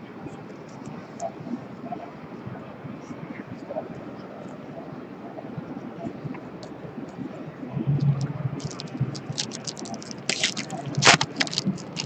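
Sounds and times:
card pack wrappers crinkling: 8.6s - 12.0s
cards rustling: 8.6s - 12.0s.

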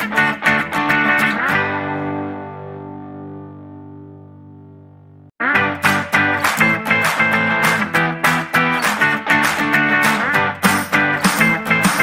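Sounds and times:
strummed guitar chords: 0.0s - 12.0s.

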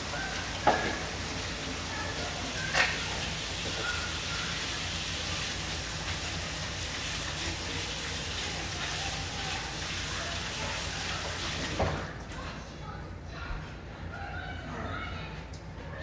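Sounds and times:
faucet running into sink: 0.0s - 12.2s.

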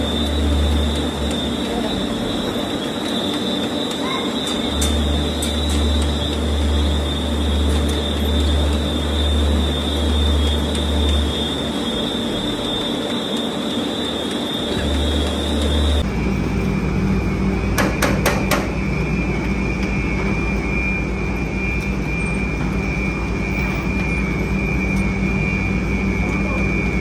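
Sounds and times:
high machinery whine: 0.0s - 27.0s
loud low machine hum: 0.0s - 27.0s.

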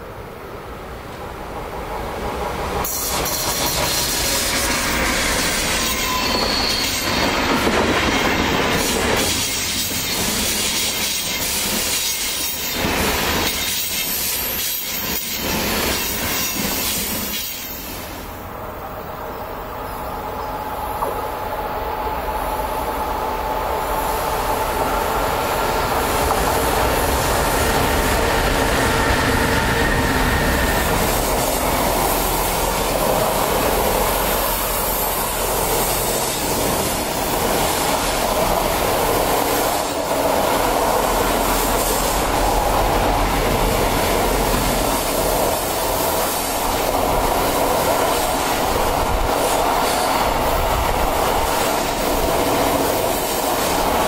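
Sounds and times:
freight train rolling past: 0.0s - 54.0s
wheels squealing: 4.4s - 7.5s.

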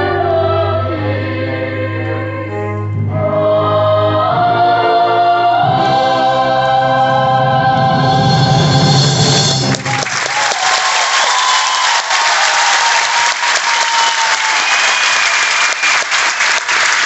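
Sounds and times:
audience applause: 9.6s - 17.0s
audience whoops: 9.7s - 17.0s.

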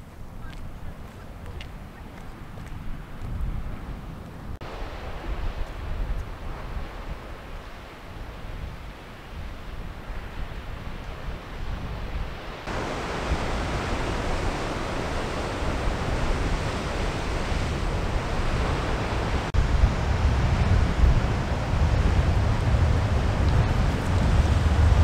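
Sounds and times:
wind buffeting microphone: 0.0s - 25.0s
ocean surf washing: 1.0s - 25.0s.

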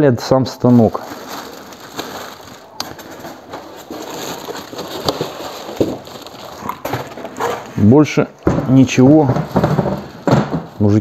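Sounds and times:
plastic wrapping crinkling: 0.2s - 11.0s
clicks and knocks: 8.4s - 10.8s.

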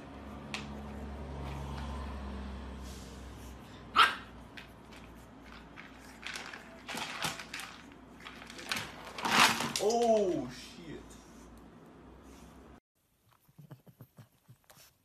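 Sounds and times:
puppy barking: 3.9s - 4.4s
pellet litter rattling and scraping: 5.5s - 9.9s.

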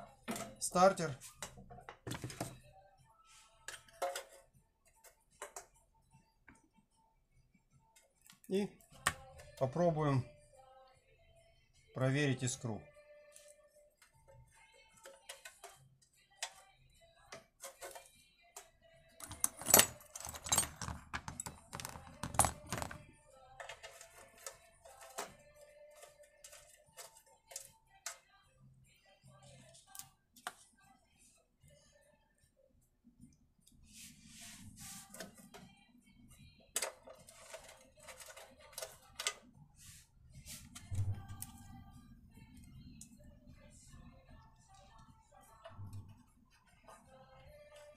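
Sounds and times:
plastic housing clicking and clattering: 19.2s - 25.3s.

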